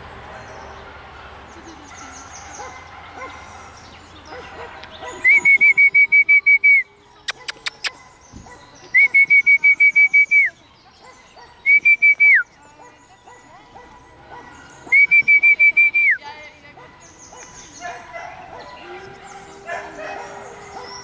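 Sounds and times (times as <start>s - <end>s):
sharp clicks: 7.3s - 7.9s.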